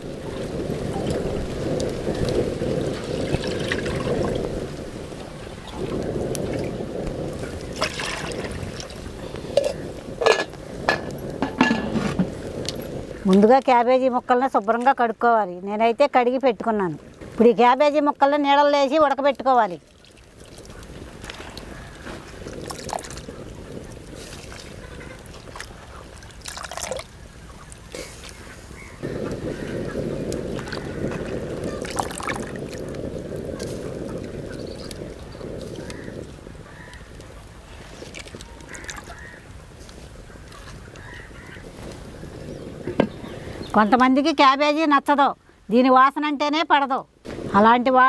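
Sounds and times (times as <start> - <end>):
trickling water: 0.0 - 11.8, 18.8 - 39.8
pots and lid clinking: 9.6 - 12.2
water pouring into pot: 26.3 - 27.1, 31.7 - 33.0.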